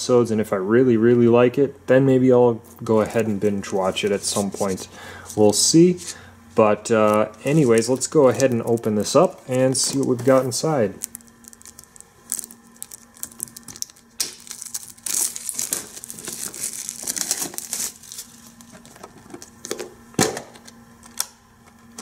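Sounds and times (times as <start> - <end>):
plastic wrapping crinkling and tearing: 7.0 - 19.8.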